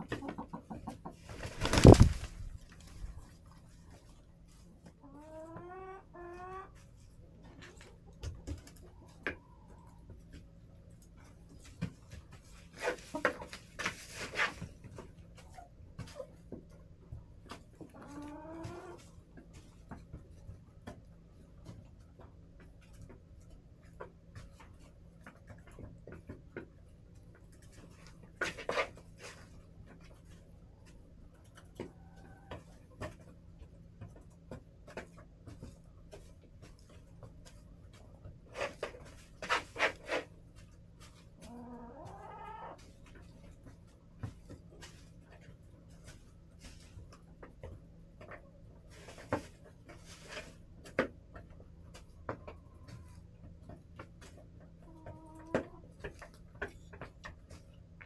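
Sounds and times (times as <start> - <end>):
hens calling: 41.4 - 42.8.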